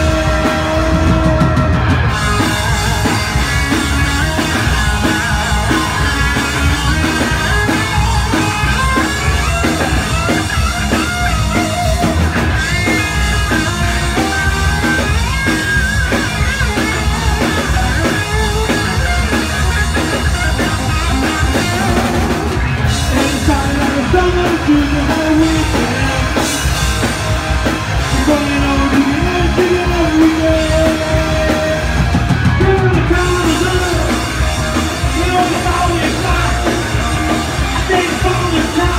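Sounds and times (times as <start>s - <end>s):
live rock band playing: 0.0s - 38.9s.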